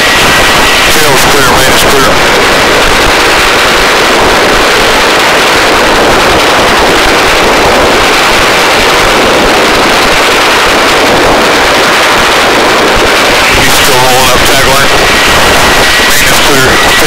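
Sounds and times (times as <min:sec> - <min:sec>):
helicopter rotor and engine: 0:00.0 - 0:17.0
rotor-wash wind: 0:00.0 - 0:17.0.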